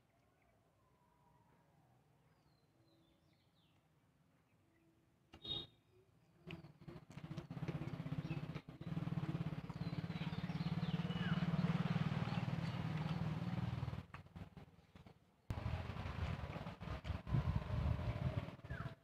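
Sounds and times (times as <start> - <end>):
bird chirping: 6.4 - 13.6
vehicle engine passing by: 6.5 - 19.0.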